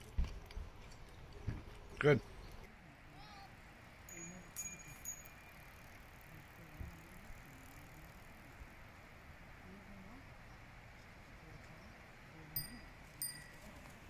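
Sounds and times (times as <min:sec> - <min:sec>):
bicycle bell ringing: 0:04.1 - 0:06.2, 0:12.6 - 0:14.0.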